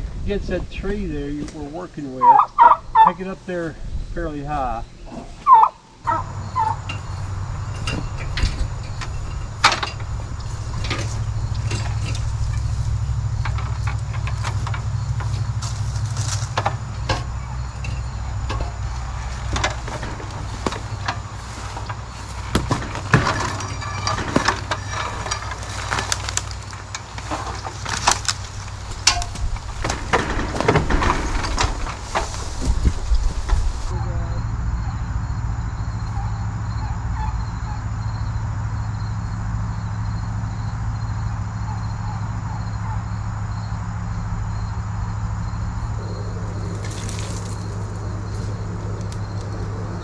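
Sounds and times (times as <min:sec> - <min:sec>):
steady low hum: 0:00.0 - 0:50.0
metal ladder knocks and clanks: 0:06.6 - 0:33.9.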